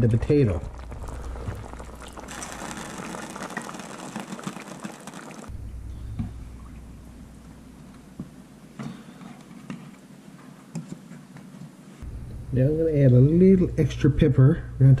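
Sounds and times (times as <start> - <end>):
stew bubbling at a simmer: 0.0 - 7.3
potatoes plopping into broth: 0.5 - 5.5.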